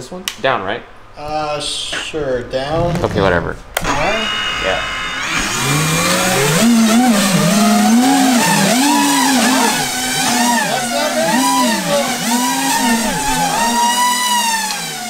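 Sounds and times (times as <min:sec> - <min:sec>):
drone motors buzzing whine: 0:03.8 - 0:15.0.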